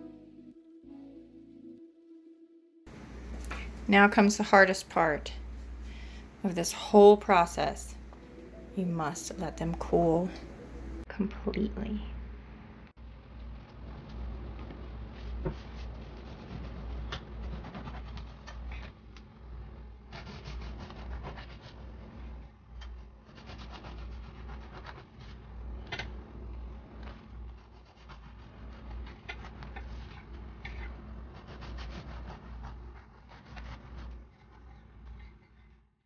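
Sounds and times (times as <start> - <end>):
bread knife sawing through loaf: 15.5 - 19.0, 19.7 - 25.5, 27.1 - 35.8.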